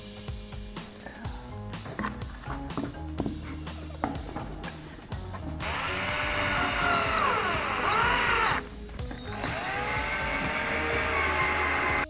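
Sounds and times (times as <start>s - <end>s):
power drill motor whine: 5.6s - 12.0s.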